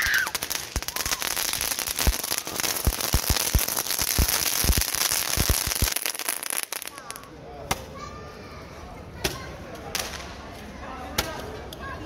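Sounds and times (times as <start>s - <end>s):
firework sparks hissing: 0.0s - 7.3s
firework crackling and popping: 0.0s - 7.9s, 9.2s - 10.6s.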